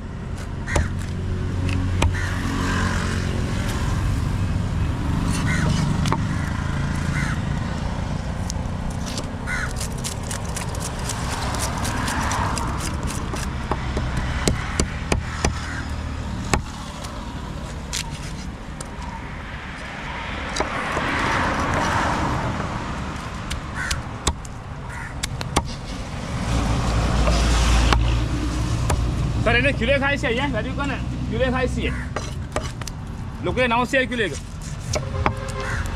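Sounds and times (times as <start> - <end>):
passing road traffic: 0.0 - 35.9
knife on wooden chopping block: 32.1 - 32.9.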